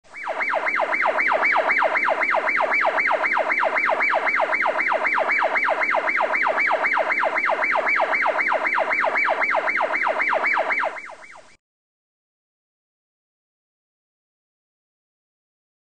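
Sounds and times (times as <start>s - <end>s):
electronic siren wail: 0.0s - 11.6s.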